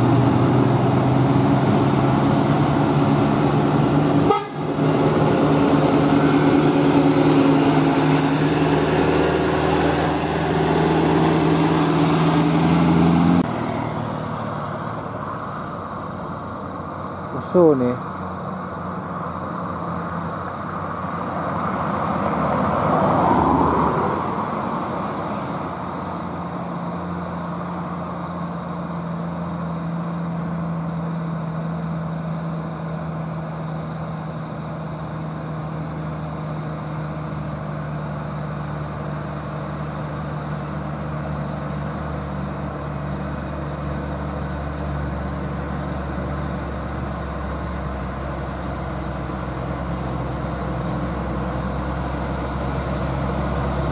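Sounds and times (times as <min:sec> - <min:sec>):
car passing by: 0:00.0 - 0:15.6, 0:20.5 - 0:26.6
truck diesel engine running: 0:00.0 - 0:22.4, 0:24.4 - 0:53.9.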